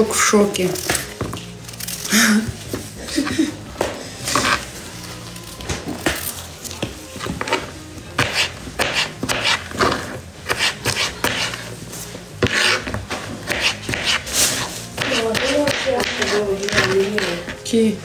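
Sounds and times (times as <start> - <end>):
knife cutting on a cutting board: 4.2 - 4.7, 6.0 - 11.7, 12.4 - 17.6.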